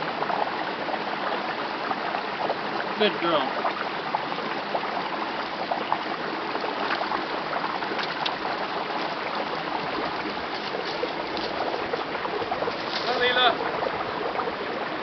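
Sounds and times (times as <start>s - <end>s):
stream running over stones: 0.0s - 15.0s.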